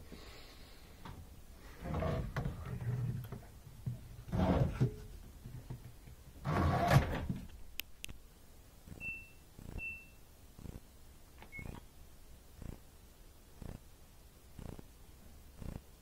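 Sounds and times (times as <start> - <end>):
knocking and rustling from handling: 2.0 - 7.5
washer control panel beeps: 9.0 - 10.2, 11.4 - 11.8.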